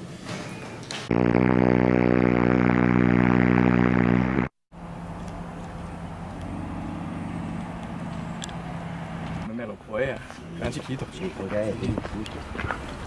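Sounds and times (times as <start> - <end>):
loud droning tone: 1.1 - 9.5.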